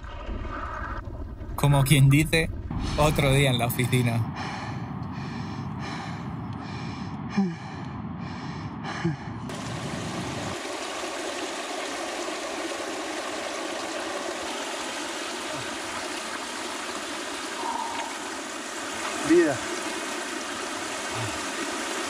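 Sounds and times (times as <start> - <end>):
flowing water rushing: 9.5 - 22.0.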